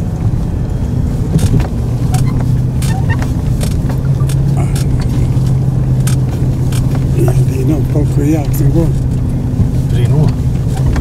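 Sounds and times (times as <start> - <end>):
car engine running: 0.0 - 11.0
knocks and clicks: 1.4 - 5.1.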